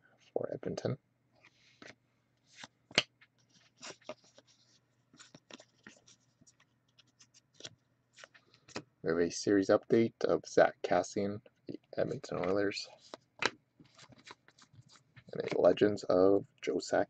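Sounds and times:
cardboard cards sliding and clicking: 1.4s - 6.2s, 12.4s - 15.6s.

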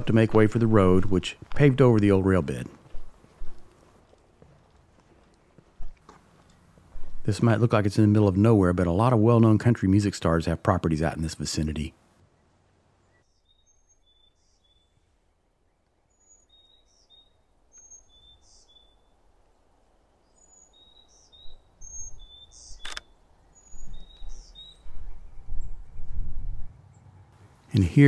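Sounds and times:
faint outdoor hush: 0.0s - 13.4s
small birds chirping: 11.1s - 19.3s, 20.2s - 28.0s
sharp click: 22.8s - 23.1s.

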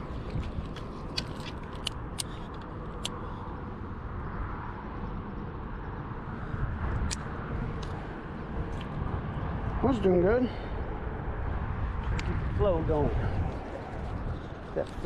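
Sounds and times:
sharp ticks: 0.5s - 3.2s.

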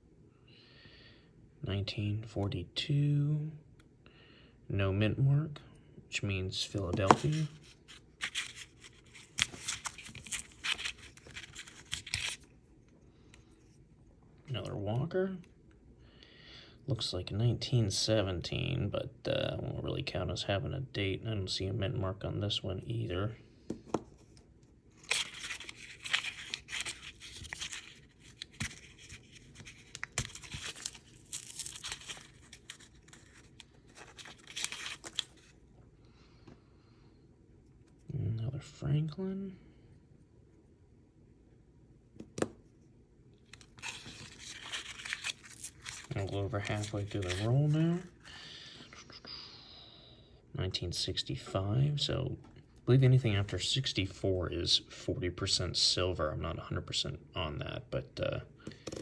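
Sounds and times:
paper wrapper crinkling: 7.0s - 12.5s, 24.9s - 35.6s, 43.5s - 48.4s.

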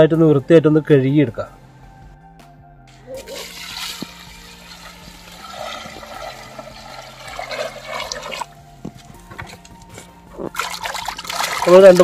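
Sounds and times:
water pouring into metal basin: 3.2s - 8.6s, 10.4s - 12.0s.

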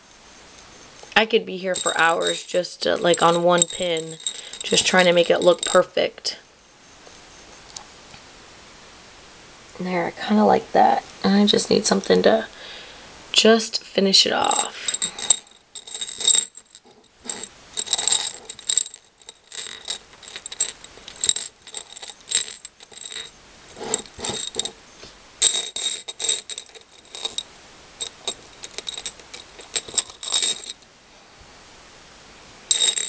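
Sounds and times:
beads clicking and rattling: 1.1s - 6.0s, 14.5s - 24.8s, 25.4s - 30.8s, 32.7s - 33.0s.

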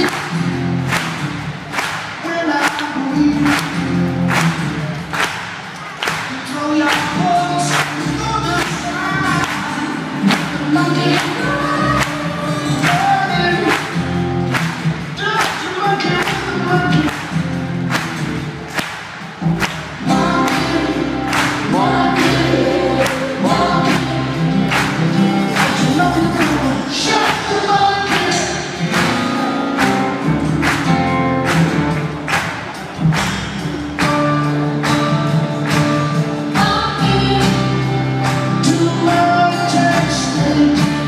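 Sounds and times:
rock band playing live: 0.0s - 41.0s
steady drum beat: 0.0s - 41.0s
sung vocals with backing voices: 6.2s - 14.0s, 20.0s - 29.7s, 36.5s - 41.0s.

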